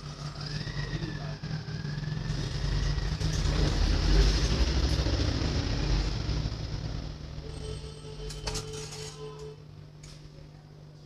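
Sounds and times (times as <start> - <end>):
vehicle engine rumble passing by: 0.0 - 7.6.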